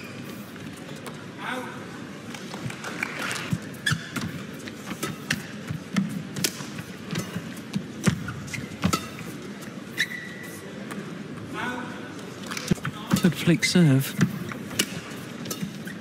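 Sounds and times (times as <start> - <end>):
shoes squeaking on court: 3.0 - 11.2, 12.6 - 16.0
racket hitting shuttlecock: 3.9 - 9.4, 14.2 - 16.0.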